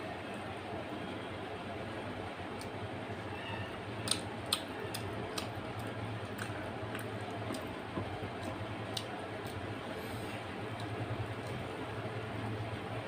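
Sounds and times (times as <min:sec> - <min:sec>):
low background hum: 0:00.0 - 0:13.0
fingers squishing food: 0:04.0 - 0:09.8.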